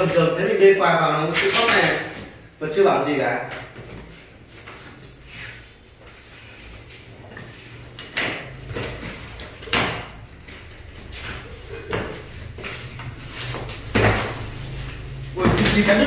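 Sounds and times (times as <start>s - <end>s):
dogs tearing cardboard: 1.3s - 2.4s, 10.8s - 16.0s.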